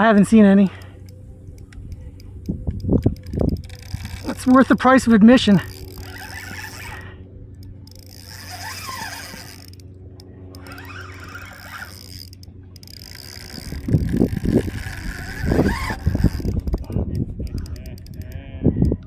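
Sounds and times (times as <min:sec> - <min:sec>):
wind buffeting microphone: 0:00.0 - 0:07.1, 0:13.0 - 0:19.0
faint steady hum: 0:00.0 - 0:19.0.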